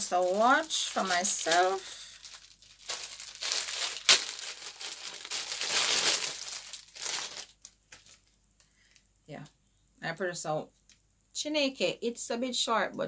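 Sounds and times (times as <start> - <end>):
packaging crinkling: 0.0 - 8.4.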